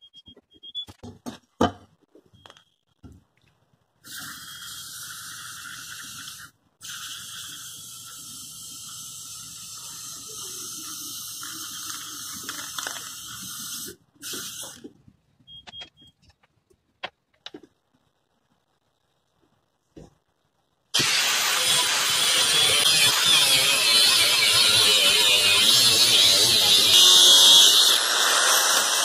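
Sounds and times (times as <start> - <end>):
aerosol spray can hissing: 4.1 - 14.8, 26.9 - 29.0.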